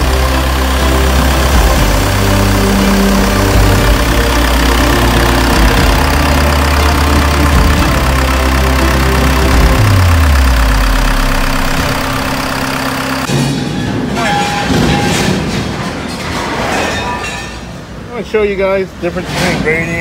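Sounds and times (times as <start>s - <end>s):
diesel engine idling: 0.0s - 13.3s.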